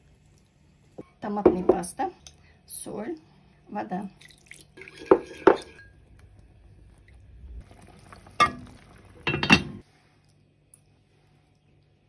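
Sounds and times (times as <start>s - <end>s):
glass pot lid clinking: 8.4s - 9.8s.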